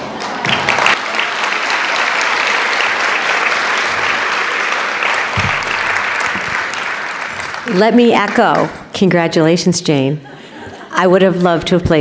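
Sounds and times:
large audience applauding: 0.0 - 8.8.

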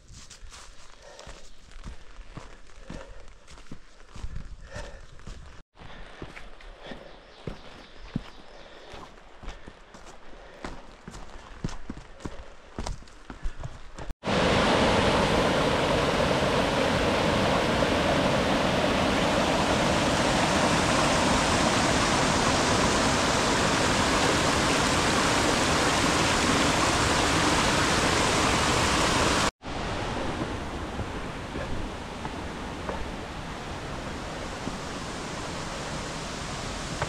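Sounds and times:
quieter rush of water: 14.2 - 37.0
rushing mountain stream: 14.2 - 37.0.

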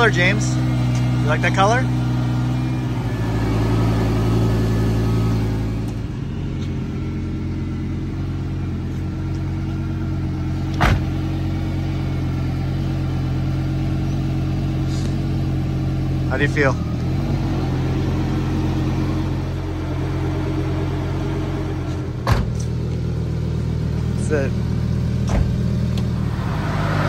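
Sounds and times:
sports car engine idling: 0.0 - 26.6
car door shutting: 10.7 - 11.2, 21.9 - 22.8, 25.2 - 26.1.

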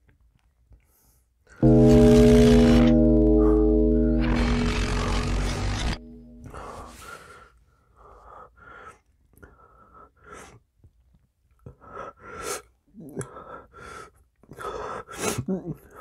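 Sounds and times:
loud burst of music: 1.6 - 6.6.

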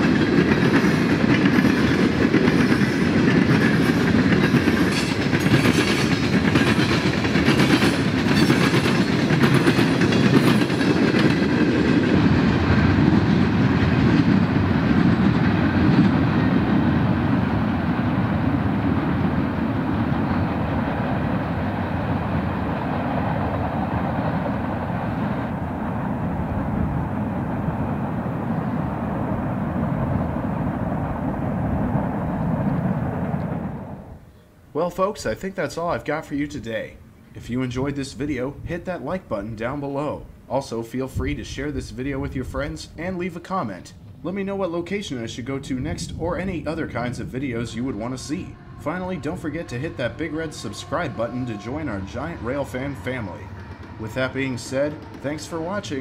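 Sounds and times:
freight train wheels clicking: 0.0 - 25.5, 43.9 - 56.0.

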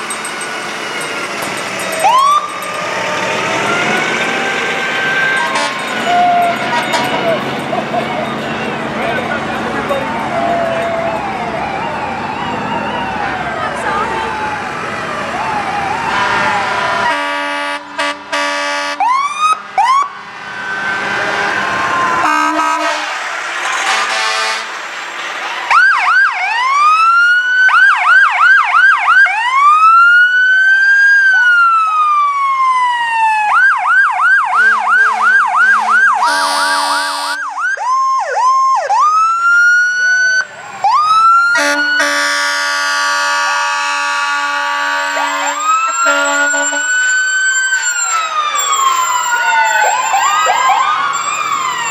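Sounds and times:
fire engine sirens wailing: 0.0 - 51.9
air horn blasts: 5.4 - 7.4, 17.0 - 19.1, 22.2 - 23.2, 23.8 - 24.7, 34.5 - 37.5, 41.6 - 46.9.

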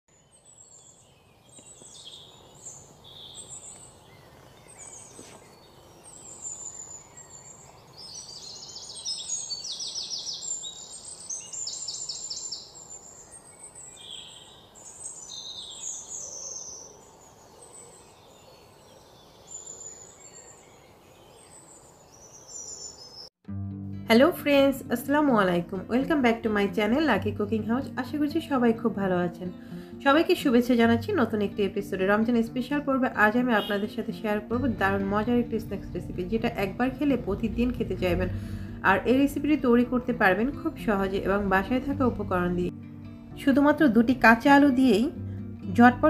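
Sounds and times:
birds chirping and calling: 0.2 - 23.3.

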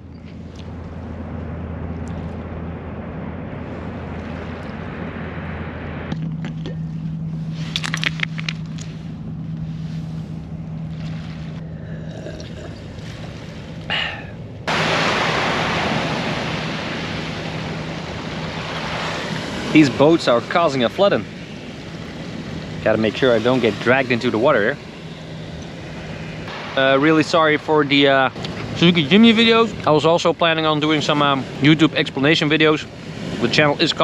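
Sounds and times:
distant boat engine drone: 0.0 - 34.0
waves washing onto shell beach: 12.8 - 34.0.

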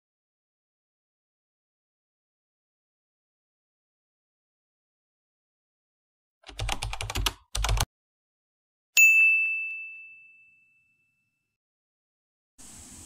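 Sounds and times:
keyboard typing clicks: 6.4 - 7.9
bright bell ding: 9.0 - 11.4.

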